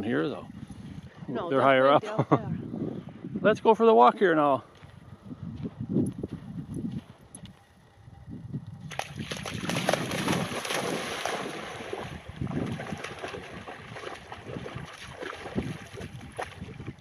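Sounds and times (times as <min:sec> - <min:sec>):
dog splashing through water: 0:08.9 - 0:17.0.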